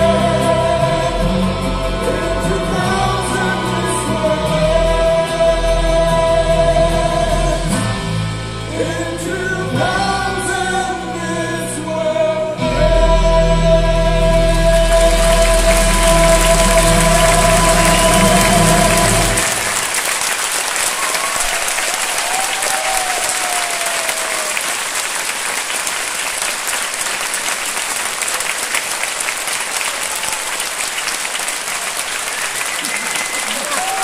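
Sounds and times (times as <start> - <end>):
group singing over music: 0.0 - 20.0
audience applause: 14.4 - 34.0.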